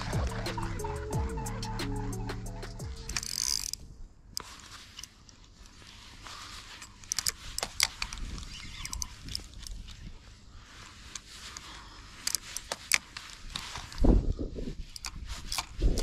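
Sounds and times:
fishing reel clicking: 0:00.0 - 0:04.5, 0:07.0 - 0:09.8, 0:14.8 - 0:16.0.

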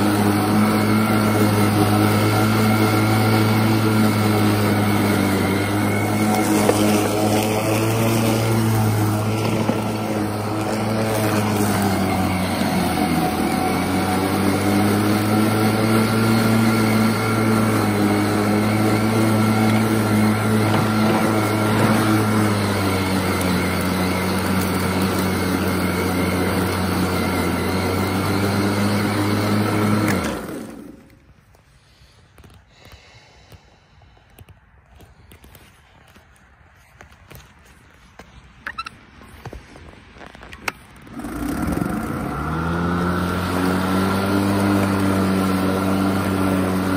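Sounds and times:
electric lawn mower humming: 0:00.0 - 0:36.2, 0:37.3 - 0:46.9
rush of cut grass: 0:00.0 - 0:46.9.

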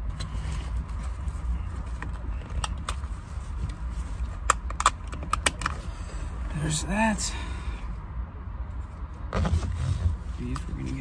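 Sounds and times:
buckle hardware clicking and rattling: 0:04.4 - 0:05.8.

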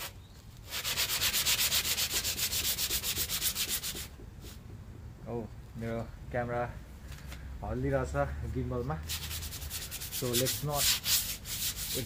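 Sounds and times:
hand sanding scraping strokes: 0:00.0 - 0:04.7, 0:09.0 - 0:12.0.

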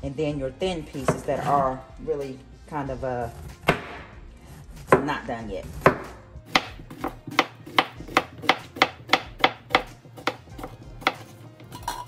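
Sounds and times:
knife chopping on plastic board: 0:03.6 - 0:04.2, 0:04.8 - 0:11.4.

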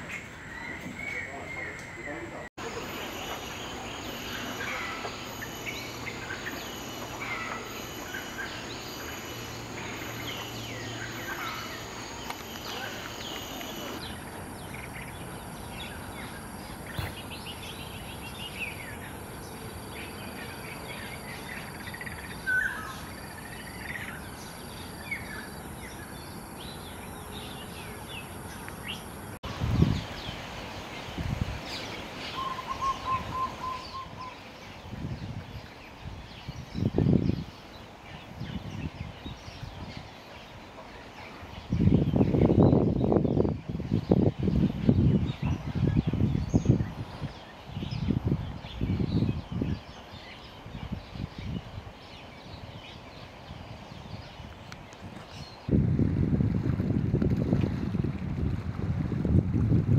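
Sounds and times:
birds chirping and calling: 0:00.0 - 0:30.1, 0:31.7 - 0:34.9.

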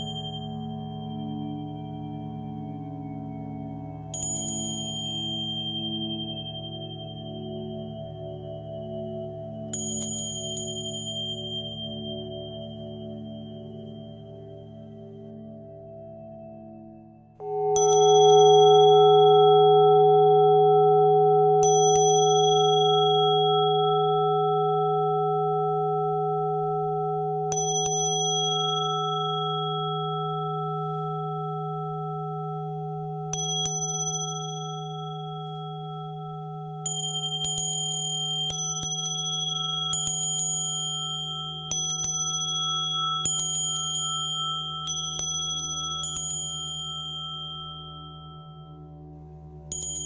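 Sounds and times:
singing bowls humming: 0:00.0 - 0:50.0
high-pitched bell strikes: 0:17.4 - 0:49.1, 0:49.7 - 0:50.0.

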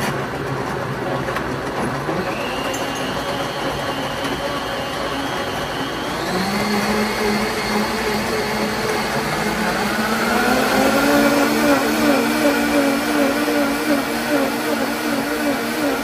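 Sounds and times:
blenders churning apples: 0:00.0 - 0:16.0.

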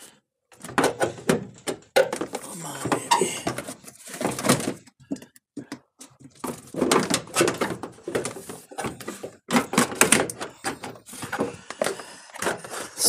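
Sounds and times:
plastic panel knocking and clicking: 0:00.6 - 0:02.5, 0:04.3 - 0:12.6.

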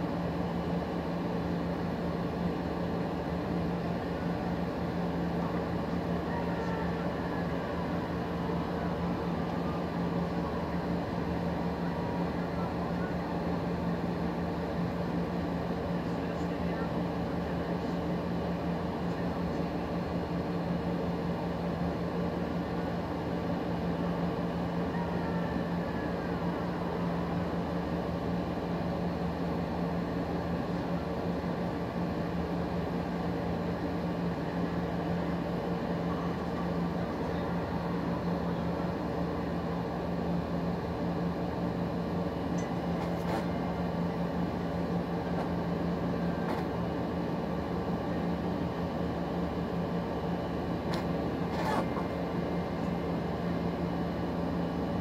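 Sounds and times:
low machine hum: 0:00.0 - 0:55.0
faint high tone: 0:24.8 - 0:26.4.

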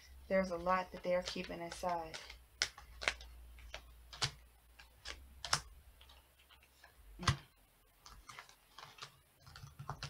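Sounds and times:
cards clicking on table: 0:01.0 - 0:06.6.

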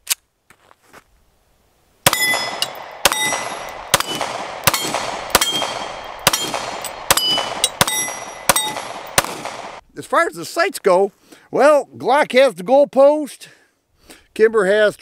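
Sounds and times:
pistol shots: 0:02.1 - 0:09.8
steel targets ringing: 0:02.1 - 0:09.8.

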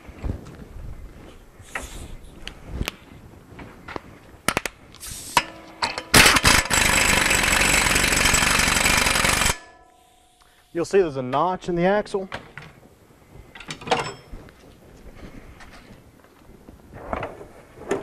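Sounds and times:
impact wrench running: 0:05.3 - 0:10.2.

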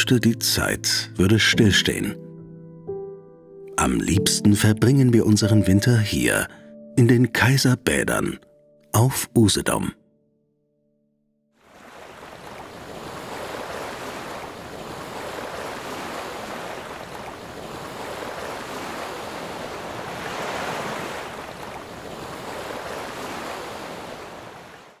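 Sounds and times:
waves washing onto shore: 0:11.6 - 0:25.0.

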